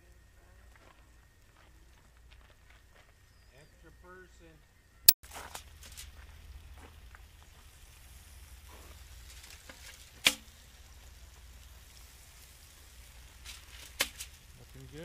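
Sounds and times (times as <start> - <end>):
chicken sizzling on grill: 5.3 - 15.0.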